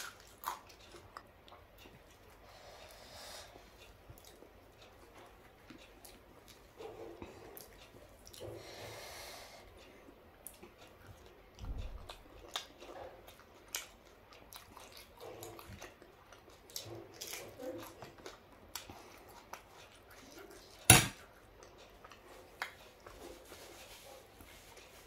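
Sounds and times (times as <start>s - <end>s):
close chewing with mouth clicks: 0.0s - 8.8s, 9.6s - 25.0s
noisy breath: 2.4s - 3.8s, 8.4s - 10.1s.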